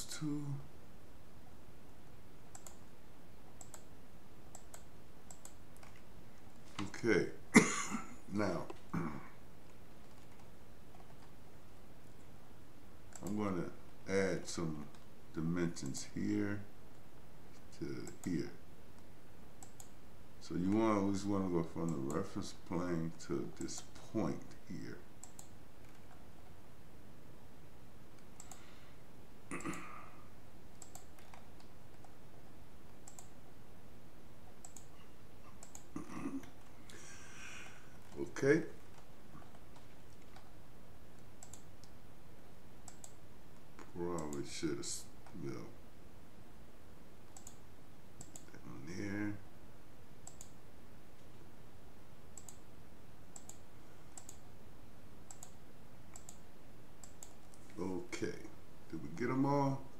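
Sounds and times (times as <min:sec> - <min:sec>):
steady low hiss: 0:00.0 - 0:59.9
computer mouse clicking: 0:02.5 - 0:02.9, 0:03.5 - 0:03.9, 0:04.5 - 0:07.0, 0:09.7 - 0:11.4, 0:13.1 - 0:13.4, 0:19.0 - 0:20.0, 0:25.2 - 0:26.5, 0:28.2 - 0:28.7, 0:30.7 - 0:32.2, 0:32.8 - 0:33.4, 0:34.5 - 0:34.9, 0:35.5 - 0:37.0, 0:38.8 - 0:40.5, 0:41.2 - 0:42.0, 0:42.8 - 0:44.5, 0:47.3 - 0:47.6, 0:48.2 - 0:48.6, 0:50.2 - 0:50.6, 0:52.4 - 0:52.6, 0:53.3 - 0:54.5, 0:55.3 - 0:57.8.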